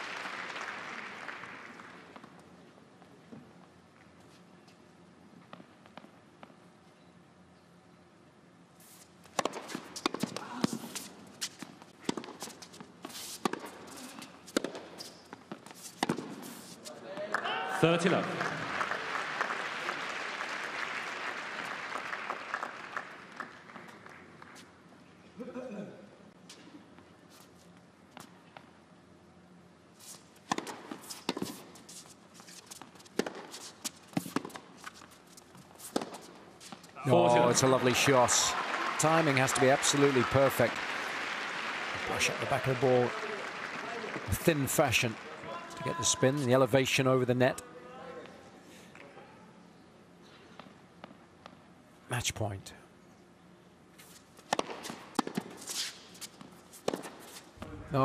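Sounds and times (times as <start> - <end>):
racket striking tennis ball: 9.3 - 12.5, 13.1 - 13.9, 14.5 - 15.0, 15.8 - 16.7, 30.4 - 31.7, 33.0 - 35.0, 35.8 - 36.8, 54.4 - 57.4
tennis ball bouncing: 9.3 - 16.7, 30.4 - 31.7, 32.5 - 36.9, 54.4 - 57.4
shoe scuffs on court: 53.9 - 57.7.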